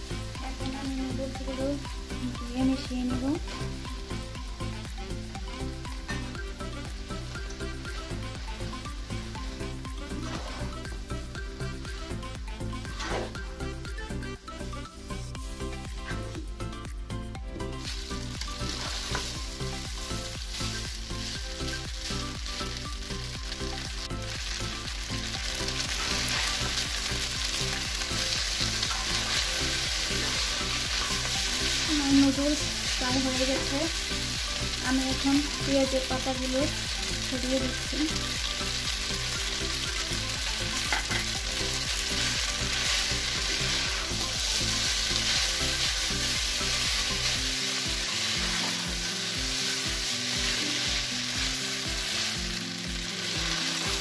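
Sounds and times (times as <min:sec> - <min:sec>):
noodles sizzling in frying pan: 0:00.0 - 0:54.0
utensil stirring in pan: 0:17.7 - 0:54.0.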